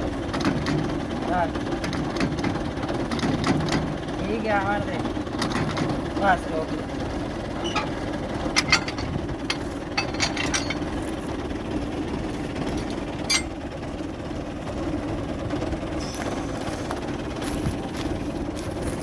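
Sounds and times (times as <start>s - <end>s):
tractor engine idling: 0.0s - 19.0s
sharp metal clinks: 13.3s - 13.6s.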